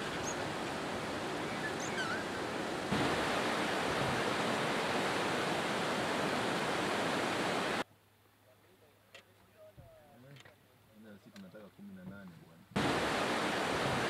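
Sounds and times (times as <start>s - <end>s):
river rapids rushing: 0.0s - 7.8s, 12.8s - 14.0s.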